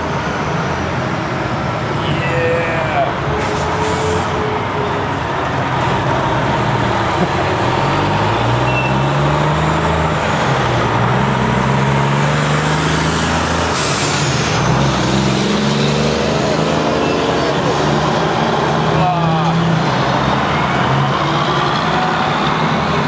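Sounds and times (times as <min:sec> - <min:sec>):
diesel truck engines rumbling: 0:00.0 - 0:23.0
truck accelerating: 0:00.0 - 0:23.0.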